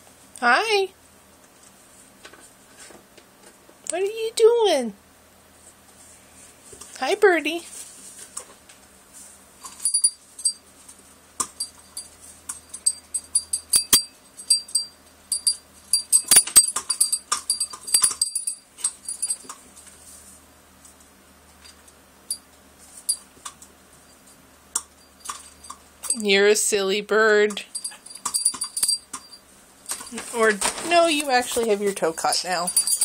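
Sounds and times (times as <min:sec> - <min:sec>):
small metal bell jingling: 0:09.6 - 0:10.7, 0:11.6 - 0:19.5, 0:22.3 - 0:23.3, 0:24.9 - 0:26.4, 0:27.5 - 0:30.2, 0:30.9 - 0:33.0.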